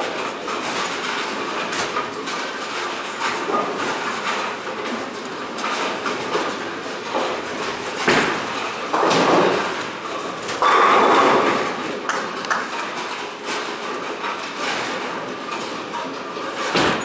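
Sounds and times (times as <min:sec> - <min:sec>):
bowling pins crashing: 0:00.0 - 0:17.0
bowling ball thudding and rolling: 0:03.3 - 0:15.7.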